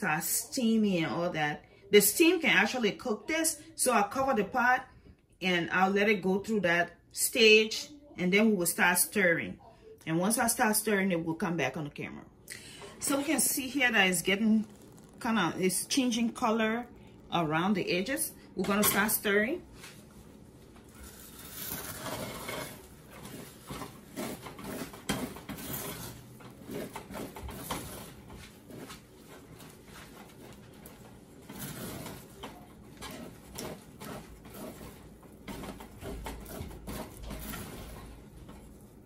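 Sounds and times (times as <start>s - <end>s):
spatula scraping saucepan: 12.5s - 39.0s.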